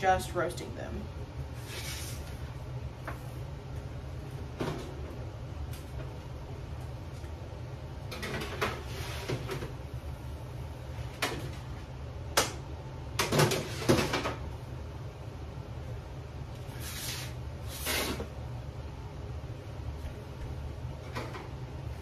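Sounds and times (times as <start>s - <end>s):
low steady hum: 0.0s - 22.0s
baking tray scraping: 1.6s - 2.4s, 8.6s - 9.6s, 16.7s - 18.3s.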